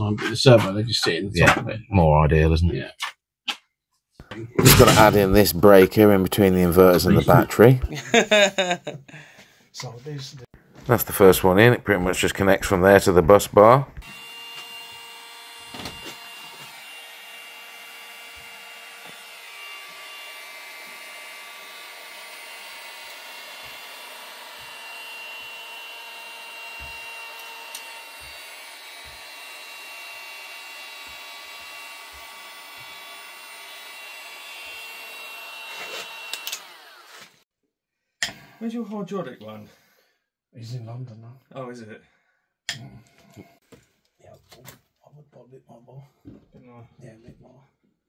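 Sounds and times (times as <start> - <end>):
heat gun fan whining: 14.0 - 37.4.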